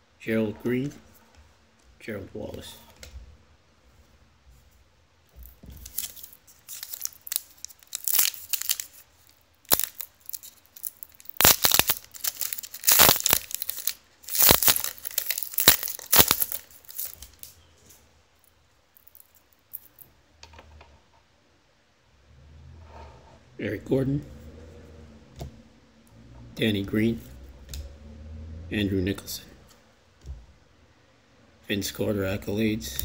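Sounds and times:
card pack wrapper ripping: 0:05.8 - 0:17.5.

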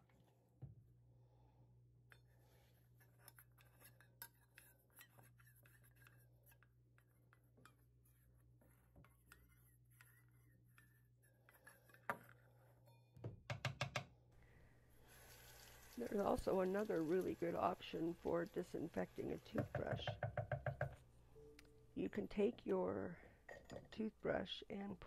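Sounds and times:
toothbrush scraping in metal bowl: 0:02.8 - 0:13.0.

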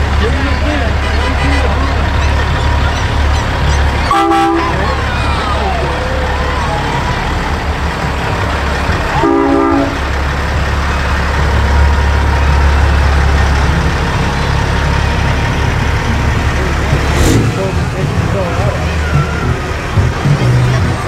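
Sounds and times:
low rumble of traffic: 0:00.0 - 0:21.0
multi-tone horn blast: 0:04.1 - 0:04.8, 0:09.2 - 0:10.0.

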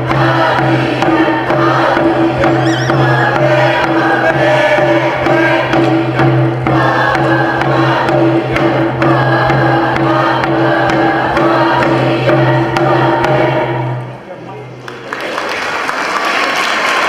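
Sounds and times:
group chanting in unison: 0:00.0 - 0:14.0
frame drums beating: 0:00.0 - 0:14.3.

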